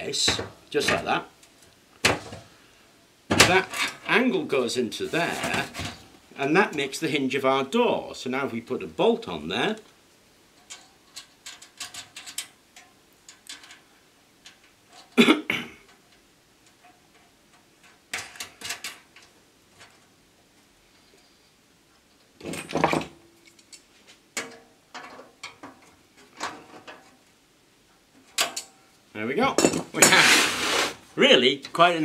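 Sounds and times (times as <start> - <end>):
metal clicks and clinks: 28.3 - 28.8.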